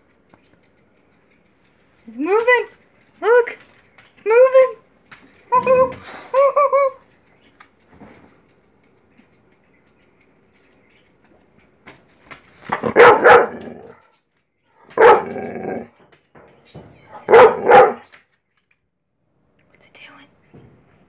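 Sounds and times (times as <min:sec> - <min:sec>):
dog barking: 0:12.7 - 0:14.0, 0:14.8 - 0:15.9, 0:17.1 - 0:18.1.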